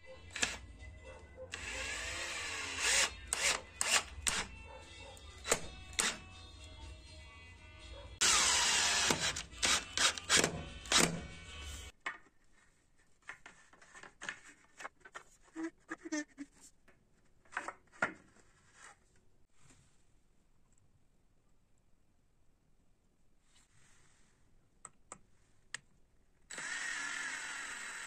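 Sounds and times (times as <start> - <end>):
cordless drill driving screw: 0.3 - 0.6, 1.5 - 4.5, 5.4 - 6.2, 8.2 - 11.3, 26.5 - 28.0.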